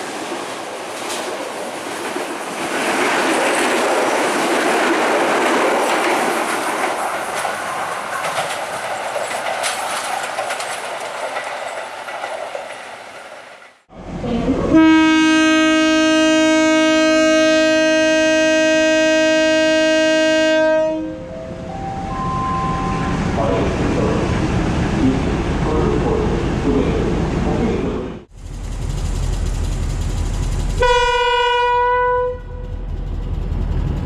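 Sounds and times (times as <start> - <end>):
train wheels clicking over rail joints: 0.8 - 13.9
train horn long blast: 14.3 - 23.1, 30.8 - 32.8.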